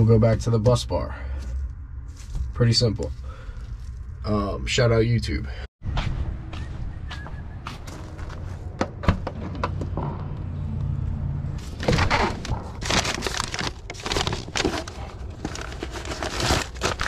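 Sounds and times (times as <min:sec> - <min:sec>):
paper bag crinkling and rustling: 0:11.7 - 0:17.0.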